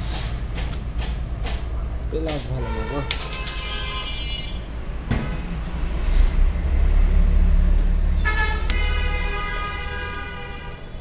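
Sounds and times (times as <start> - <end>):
vehicle horn: 2.7 - 4.7, 8.2 - 11.0.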